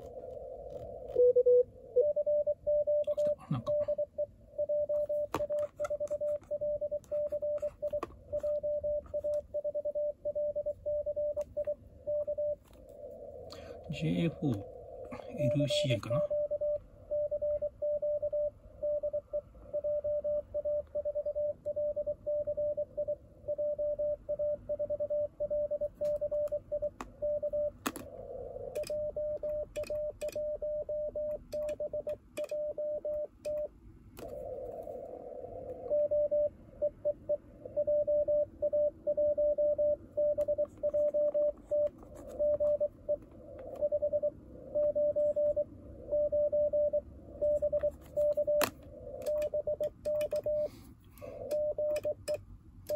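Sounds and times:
morse code tone: 0:01.1 - 0:12.6, 0:35.8 - 0:50.8
radio hiss: 0:12.0 - 0:16.4, 0:34.2 - 0:36.2.

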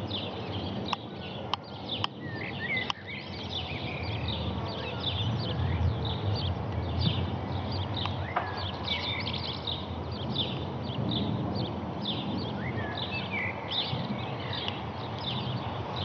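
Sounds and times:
small birds chirping: 0:00.0 - 0:16.0
whistled bird calls: 0:02.2 - 0:05.8.

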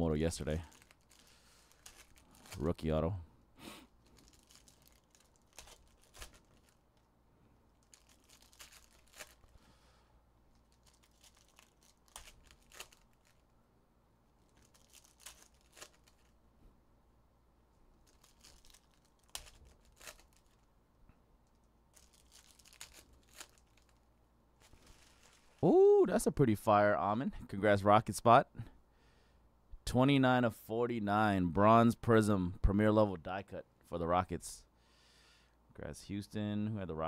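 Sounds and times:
foil wrappers crinkling and tearing: 0:00.2 - 0:03.0, 0:04.0 - 0:07.1, 0:07.7 - 0:09.7, 0:10.5 - 0:13.5, 0:14.4 - 0:16.4, 0:18.0 - 0:20.7, 0:21.4 - 0:25.6.

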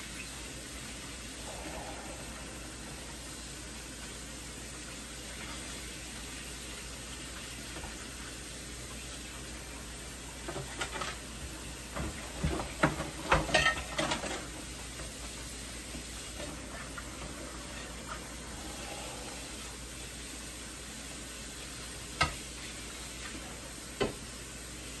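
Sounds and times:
dishes clinking and clattering: 0:10.4 - 0:11.3, 0:11.9 - 0:14.7.

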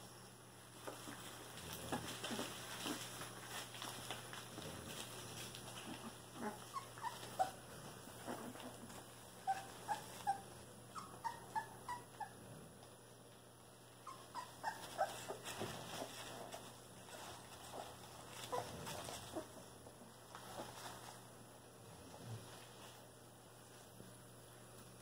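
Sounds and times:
faint rustling in wood shavings: 0:00.0 - 0:25.0
puppies squeaking and whimpering: 0:05.7 - 0:12.4, 0:14.0 - 0:16.3.

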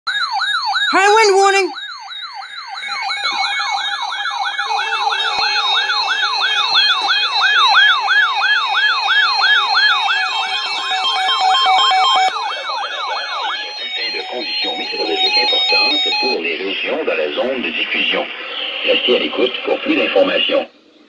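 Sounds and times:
steady alarm tone: 0:00.1 - 0:16.6
siren-like alert whoop: 0:00.2 - 0:16.4
pulsing beep: 0:11.0 - 0:16.4.

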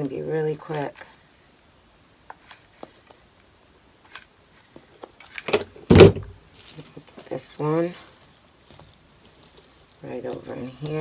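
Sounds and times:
rustling and clattering: 0:04.0 - 0:11.0
loud thump: 0:05.8 - 0:06.4.

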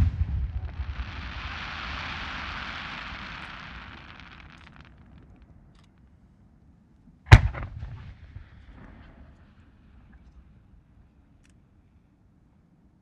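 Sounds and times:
firework launch bang: 0:00.0 - 0:05.2, 0:07.3 - 0:09.3
fireworks crackling and hissing: 0:00.0 - 0:05.5.

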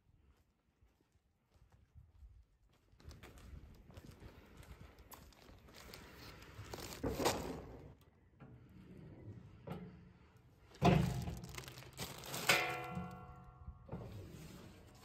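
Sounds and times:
clothing or bag rustle: 0:04.9 - 0:07.6, 0:11.0 - 0:12.8.

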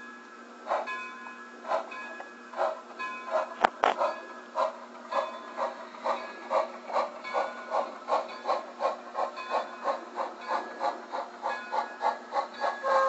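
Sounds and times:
model steam locomotive chuffing: 0:00.6 - 0:13.0.

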